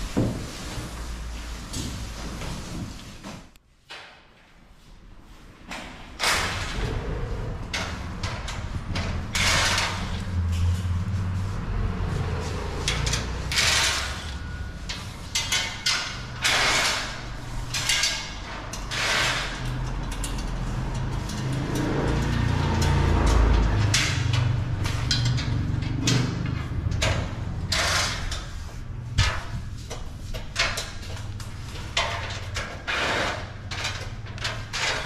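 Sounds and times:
metal crate scraping and sliding: 6.3 - 35.0
steady low rumble: 6.4 - 32.1.

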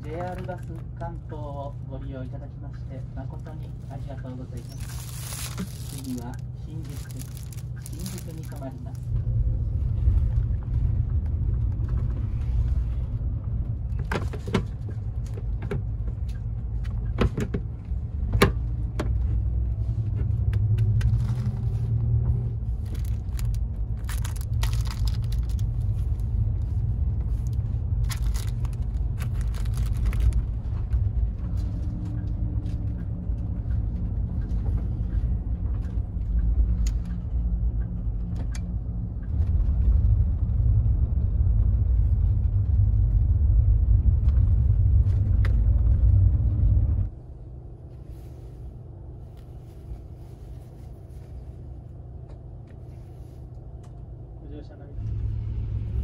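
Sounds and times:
bus engine and road rumble: 0.0 - 56.0
plastic packet crinkling: 4.6 - 9.0, 22.8 - 26.4, 27.3 - 30.5.

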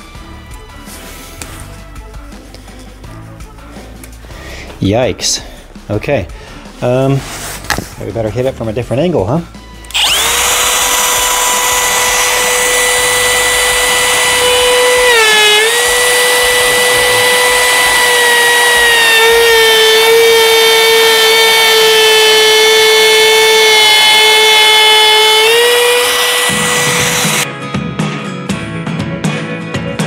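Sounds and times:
trim router whining: 9.9 - 27.5.

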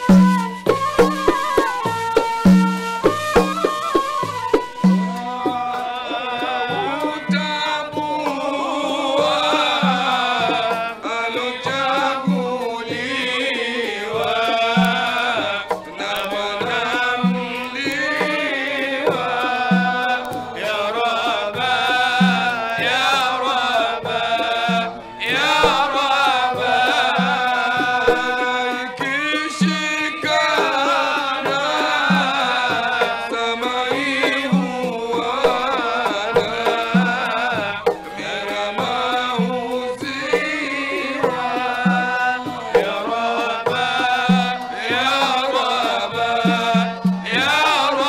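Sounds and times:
men chanting a hymn: 4.8 - 48.0.

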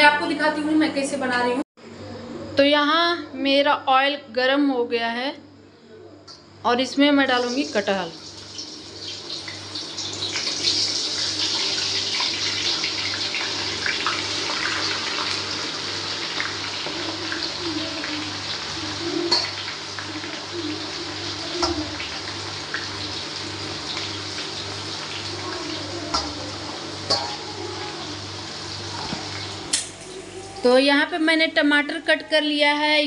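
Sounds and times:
deep-frying sizzle and bubbling: 7.2 - 30.5.

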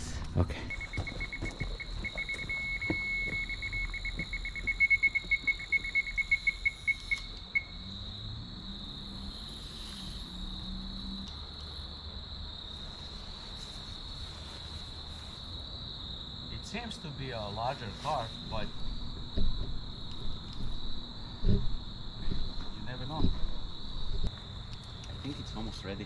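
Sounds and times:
cricket trill: 0.0 - 26.0
bite alarm beeping rapidly: 0.7 - 7.8.

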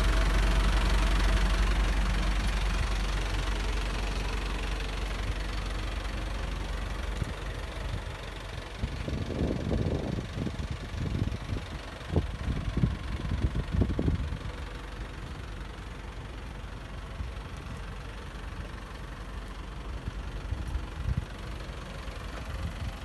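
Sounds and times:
diesel engine idling: 0.0 - 23.0.

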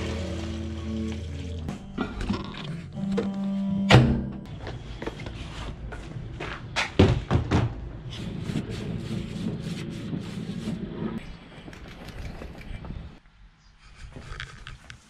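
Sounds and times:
knocks and thuds: 6.9 - 7.8.

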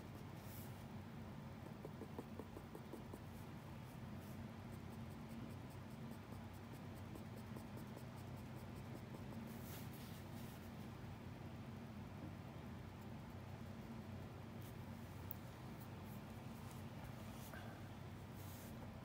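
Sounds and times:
steady low hum: 0.0 - 19.0
pencil scratching on paper: 4.7 - 10.1.

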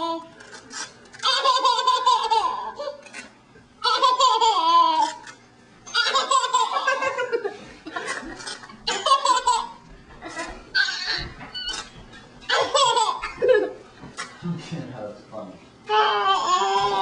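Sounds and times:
baby laughing: 1.2 - 3.0, 3.8 - 5.3, 5.9 - 7.4, 8.0 - 11.3, 12.5 - 13.8, 15.9 - 17.0.

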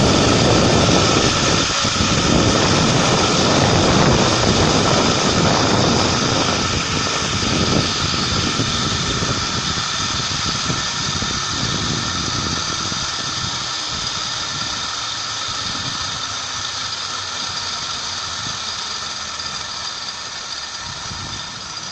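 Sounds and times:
wind rushing across microphone: 0.0 - 14.9
zipline pulleys whining on cable: 0.0 - 21.9.

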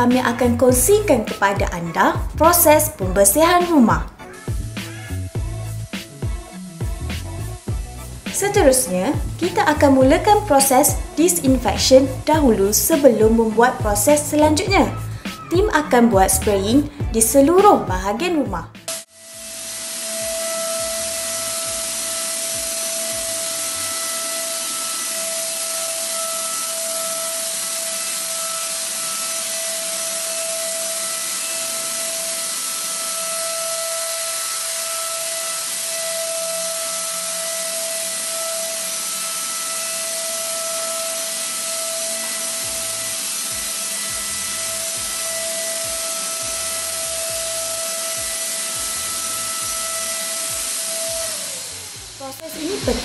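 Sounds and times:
fogger motor whine: 0.0 - 53.0
spray mist hiss: 19.0 - 26.7, 49.6 - 53.0.

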